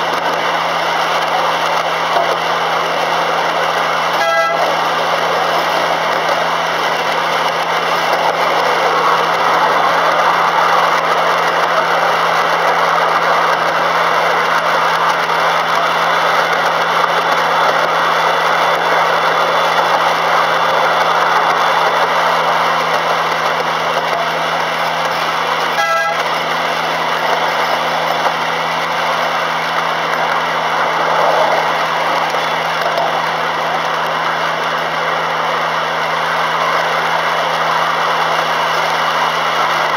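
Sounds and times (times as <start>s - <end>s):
miniature train running on track: 0.0s - 39.9s
train horn toot: 4.1s - 4.8s, 25.7s - 26.3s.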